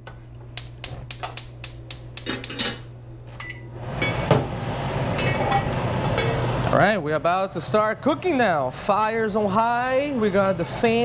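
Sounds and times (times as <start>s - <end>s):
steady low hum: 0.0s - 11.0s
spark igniter clicking: 0.6s - 2.6s.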